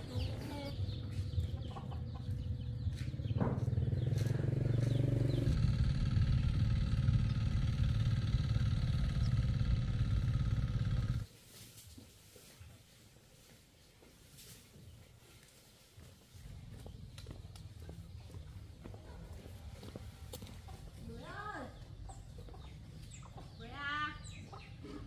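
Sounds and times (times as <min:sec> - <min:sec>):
vehicle engine running: 0:00.0 - 0:11.3.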